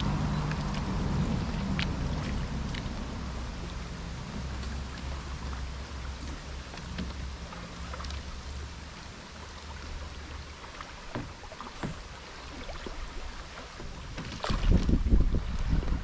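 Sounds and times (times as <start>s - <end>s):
low rumble: 0.0s - 10.6s
water lapping and splashing: 0.0s - 16.0s.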